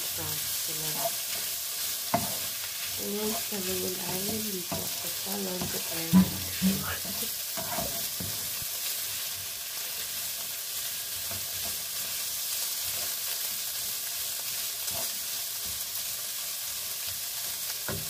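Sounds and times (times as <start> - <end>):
food sizzling in oil: 0.0 - 18.0
wooden spatula stirring: 0.9 - 8.6.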